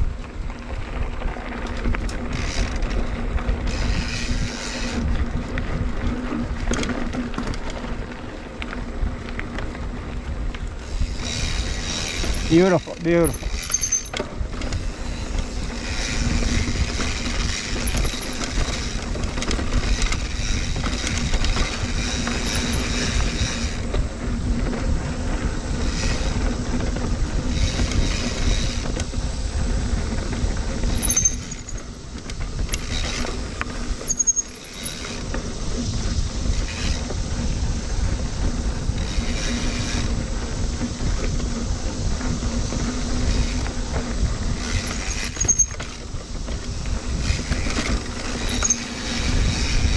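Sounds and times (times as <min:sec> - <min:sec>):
bike tyre noise: 0:00.0 - 0:49.9
wind rush on microphone: 0:00.0 - 0:49.9.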